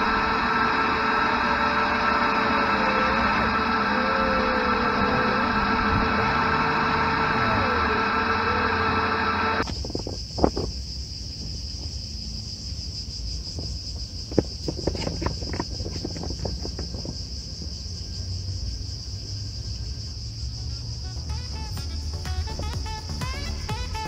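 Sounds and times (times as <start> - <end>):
brief mechanical hum: 0.0 - 9.8
insects chirring: 0.0 - 24.0
low outdoor rumble: 0.0 - 24.0.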